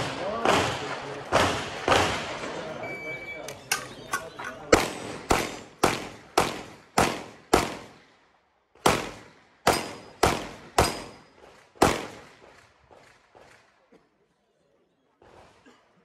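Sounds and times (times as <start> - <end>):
handgun shots echoing: 4.6 - 8.0, 8.8 - 12.3.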